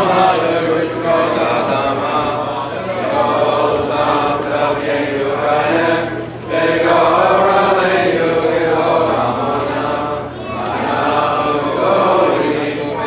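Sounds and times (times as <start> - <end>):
voices chanting together: 0.0 - 13.0.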